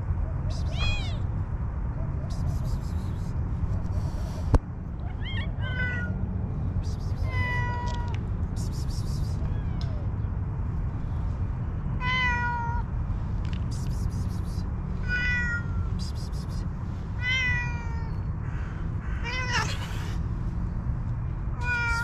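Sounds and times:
kitten meowing: 0.6s - 1.3s, 5.1s - 6.2s, 7.2s - 8.2s, 9.0s - 10.1s, 15.0s - 16.6s, 17.2s - 18.2s, 21.6s - 22.0s.

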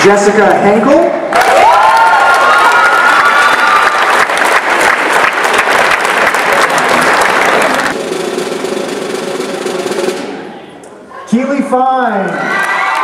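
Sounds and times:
crowd noise: 0.0s - 13.0s
audience applauding: 1.3s - 8.2s, 12.4s - 13.0s.

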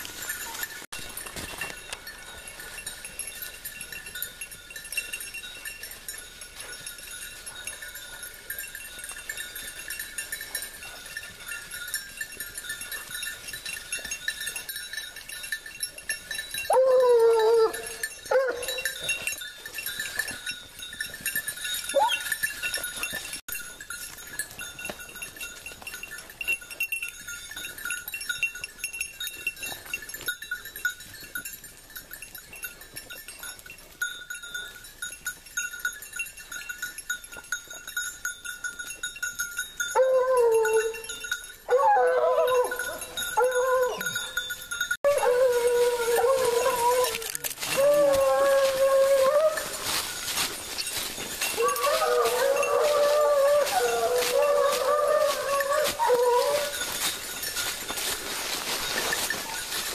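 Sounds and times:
high jingling of collar bells: 0.0s - 59.9s
hound baying: 16.6s - 19.4s, 21.8s - 23.3s, 39.9s - 44.4s, 45.0s - 50.5s, 51.4s - 57.0s.

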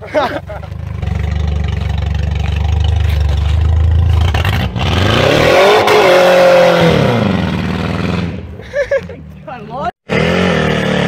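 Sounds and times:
minivan engine rumbling and revving: 0.0s - 11.0s.

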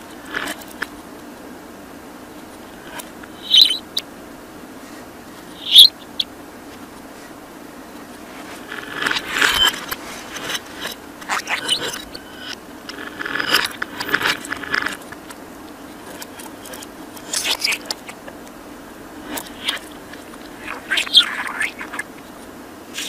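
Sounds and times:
reversed budgerigar chatter: 2.9s - 4.1s, 5.4s - 6.4s, 8.9s - 12.6s, 17.2s - 18.4s, 19.2s - 22.2s.

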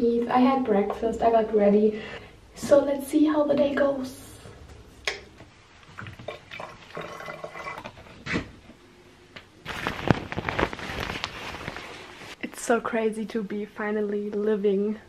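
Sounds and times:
fabric rustling: 9.6s - 12.4s.

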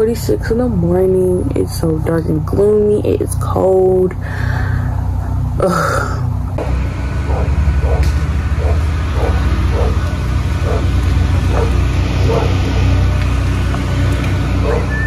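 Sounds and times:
driving rain hiss: 6.6s - 15.0s.

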